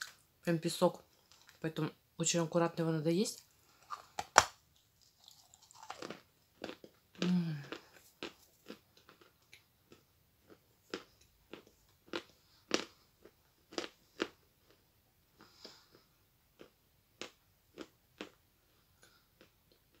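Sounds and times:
chalk crunching when chewed: 4.8 - 14.8
person humming: 7.2 - 7.8.

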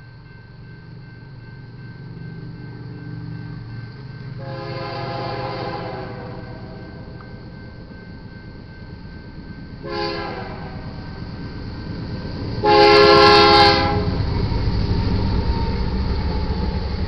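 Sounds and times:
train rumbling: 0.0 - 17.0
locomotive air horn blasts: 4.4 - 7.0, 9.8 - 11.1, 12.6 - 14.2.

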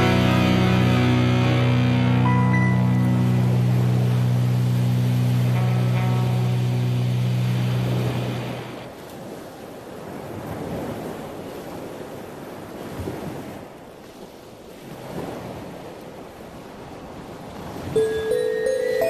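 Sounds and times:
ocean surf: 0.0 - 19.0
bell-like chimes: 18.0 - 19.0.

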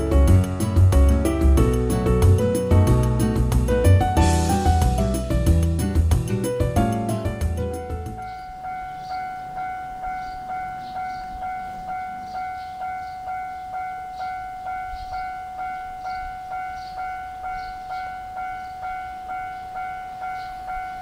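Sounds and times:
level crossing alarm ringing: 6.4 - 21.0.

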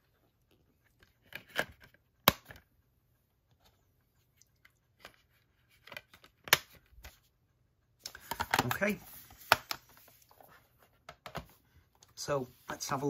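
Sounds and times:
plastic case clicks: 8.1 - 8.8.

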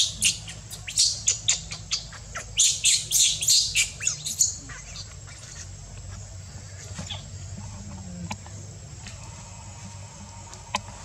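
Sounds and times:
infant monkey crying squeaks: 0.0 - 5.6.

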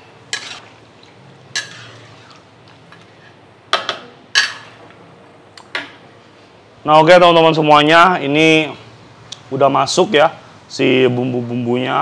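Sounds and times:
metal ladle scraping a wok: 0.2 - 0.8, 1.5 - 3.4.

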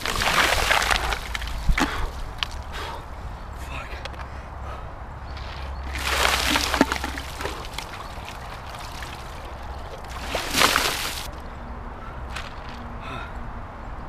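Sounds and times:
ice water splashing: 0.0 - 2.7, 5.8 - 11.3.

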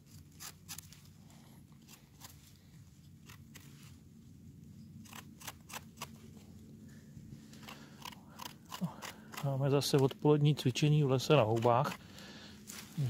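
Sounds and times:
knife scraping mushroom: 0.0 - 1.1, 5.0 - 6.3, 7.5 - 10.2, 11.2 - 12.1.

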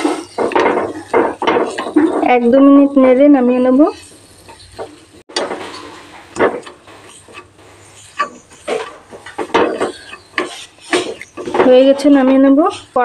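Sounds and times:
spatula scraping a frying pan: 0.0 - 13.0
spatula knocking against pan: 4.8 - 13.0.

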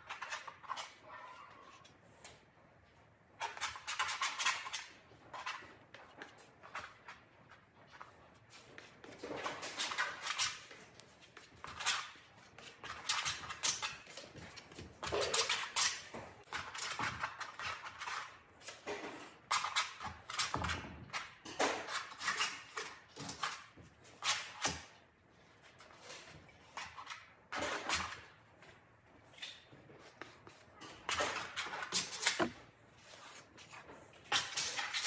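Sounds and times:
paint scraping on canvas: 31.8 - 35.0.

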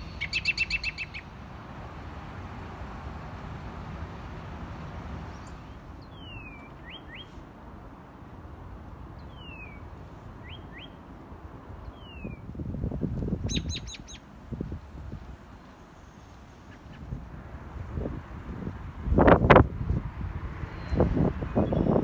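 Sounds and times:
cardinal whistling song: 0.0 - 1.3, 5.4 - 7.3, 9.2 - 9.8, 10.4 - 11.0, 11.9 - 12.5, 13.5 - 14.2, 20.7 - 22.0
sharp bird chips: 0.0 - 1.3, 13.5 - 14.2.

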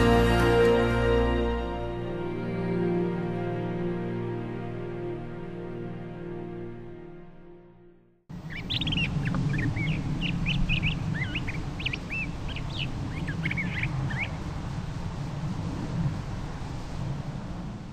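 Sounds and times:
birds chirping: 8.3 - 14.5
steady low rumble: 8.3 - 17.9.

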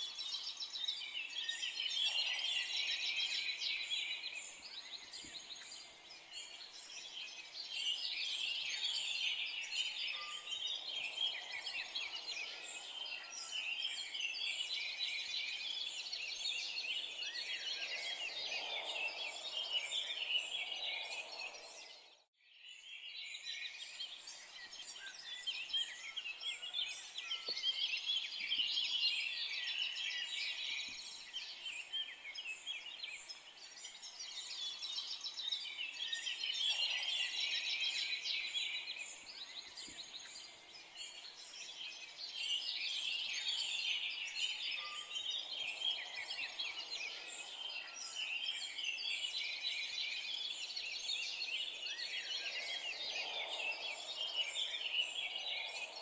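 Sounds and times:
small birds chirping: 0.0 - 56.0.

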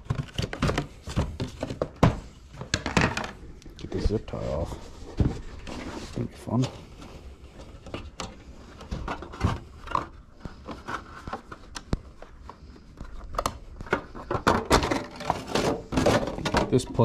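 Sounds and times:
handling clicks rubs and knocks: 6.8 - 17.0.

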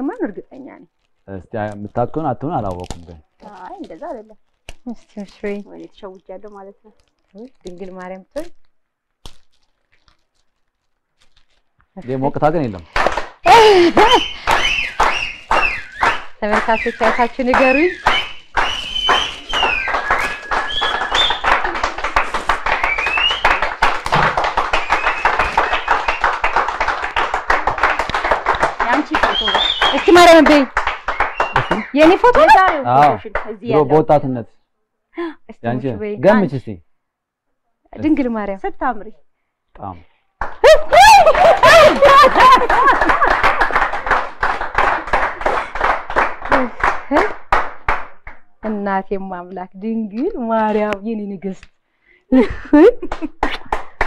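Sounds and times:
group of people clapping: 12.1 - 34.1, 40.4 - 48.8, 52.4 - 54.0
woman's wavering emotional outburst: 13.4 - 14.4, 40.6 - 42.6
high calls: 13.4 - 27.2, 27.8 - 32.7.

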